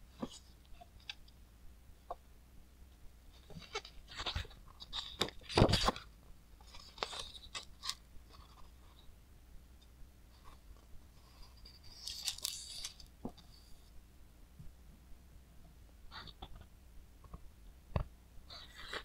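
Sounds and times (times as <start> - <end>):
book pages rustling: 3.4 - 9.0, 10.4 - 13.7, 18.6 - 19.0.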